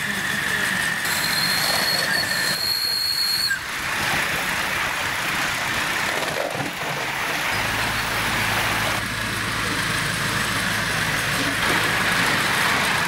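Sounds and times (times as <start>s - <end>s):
high steady squealing tone: 0.0s - 3.7s
model locomotive rushing on rails: 0.0s - 13.0s.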